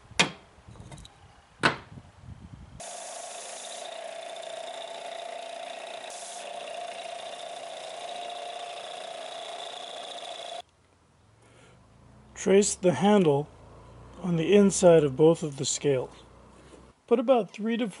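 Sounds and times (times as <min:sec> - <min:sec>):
power tool whining: 0:02.8 - 0:10.6.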